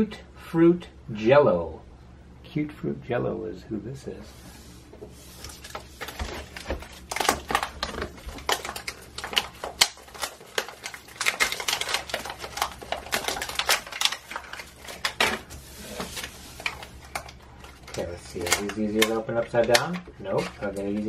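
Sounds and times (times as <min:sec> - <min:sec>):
plastic wrappers crinkling: 0:05.1 - 0:21.0.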